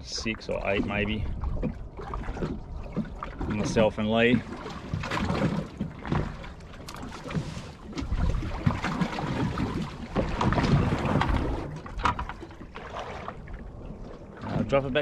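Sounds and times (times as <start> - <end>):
wind buffeting microphone: 0.0 - 5.9, 7.8 - 15.0
water lapping against boat hull: 0.0 - 15.0.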